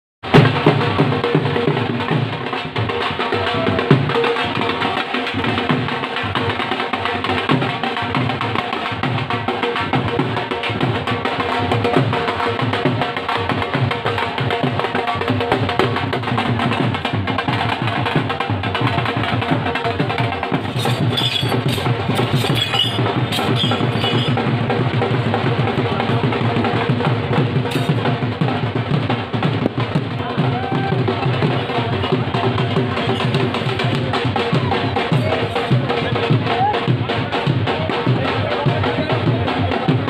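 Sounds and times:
clacking percussion: 0:00.2 - 0:40.0
rhythmic drumming: 0:00.2 - 0:40.0.

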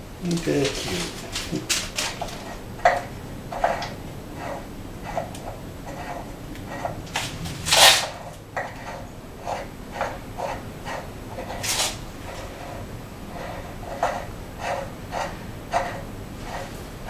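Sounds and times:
metal sliding scrapes: 0:03.5 - 0:17.0.

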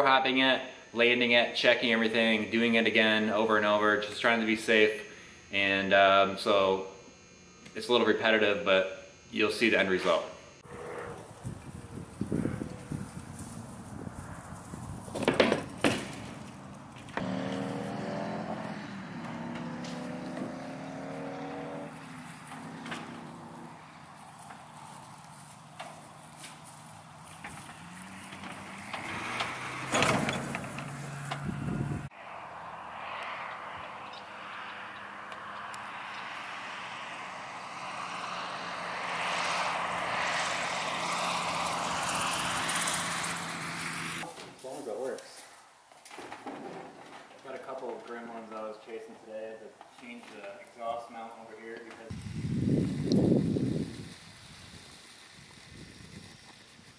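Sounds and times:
engine running: 0:10.6 - 0:44.3
propeller plane flying past: 0:10.6 - 0:44.3.

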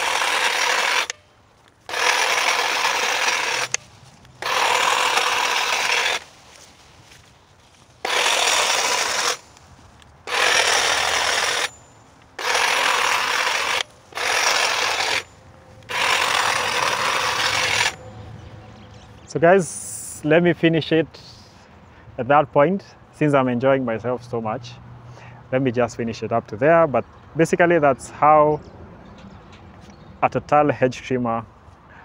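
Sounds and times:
hedge trimmer blades chattering: 0:00.0 - 0:01.2, 0:01.9 - 0:03.8, 0:04.4 - 0:06.2, 0:08.0 - 0:09.6, 0:10.3 - 0:18.0.

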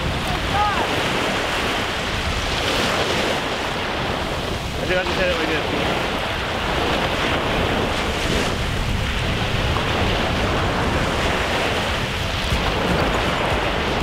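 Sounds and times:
small waves breaking on beach: 0:00.0 - 0:14.0
wind rumbling on microphone: 0:00.0 - 0:14.0.

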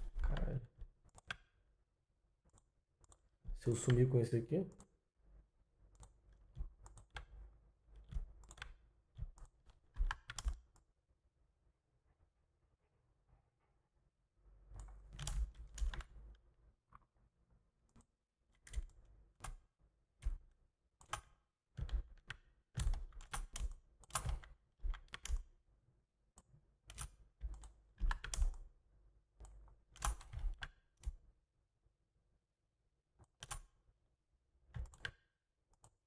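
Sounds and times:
keyboard keystrokes: 0:08.0 - 0:10.9, 0:14.8 - 0:16.2, 0:20.2 - 0:25.5, 0:26.4 - 0:28.7, 0:29.4 - 0:31.2, 0:33.2 - 0:33.8, 0:34.7 - 0:36.0.

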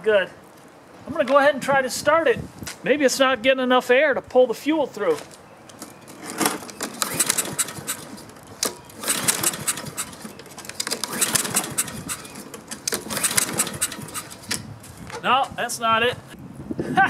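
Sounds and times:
mower engine pull-start cranking: 0:06.0 - 0:14.7.

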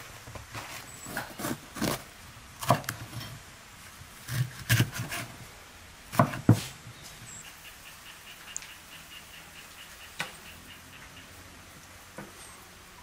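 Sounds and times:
knife slicing pepper on wooden board: 0:06.1 - 0:06.7.

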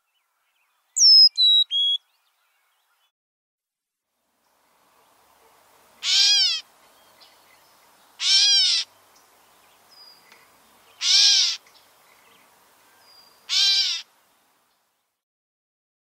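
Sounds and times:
catbird mew call: 0:06.0 - 0:06.6, 0:08.2 - 0:08.9, 0:11.0 - 0:11.6, 0:13.5 - 0:14.1.

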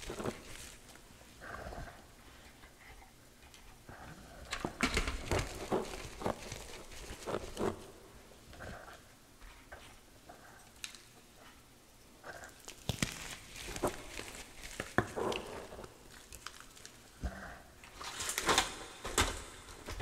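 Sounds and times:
wet chalk paste crunching: 0:05.3 - 0:07.9, 0:12.6 - 0:17.1.

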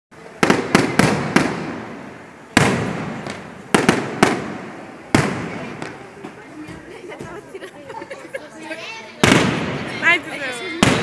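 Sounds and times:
firework shells bursting: 0:00.4 - 0:06.0, 0:09.2 - 0:09.9.

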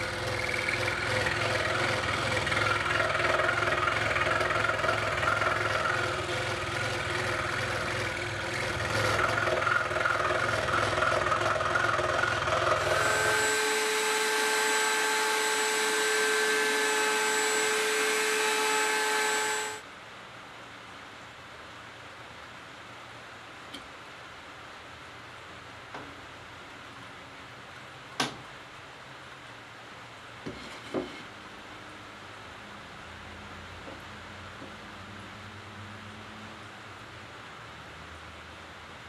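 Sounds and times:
router high whine: 0:00.0 - 0:19.8
scroll saw cutting wood: 0:00.0 - 0:19.8.

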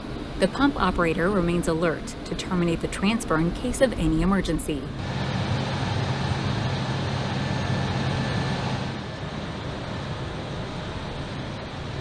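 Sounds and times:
low hum: 0:00.0 - 0:12.0
truck engine and pump running: 0:05.0 - 0:12.0.

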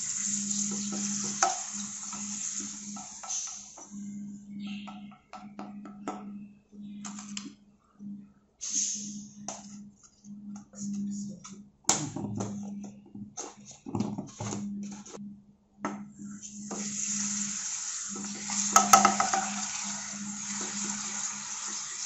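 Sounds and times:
hot oil crackling and spitting: 0:16.7 - 0:22.0.

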